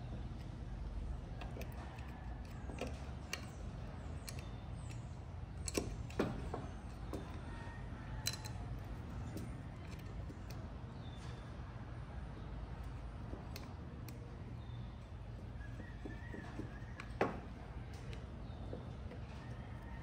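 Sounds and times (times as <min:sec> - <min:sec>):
screwdriver clicks and taps on metal: 0:01.3 - 0:07.5, 0:08.2 - 0:10.6, 0:12.8 - 0:14.3, 0:15.7 - 0:19.6.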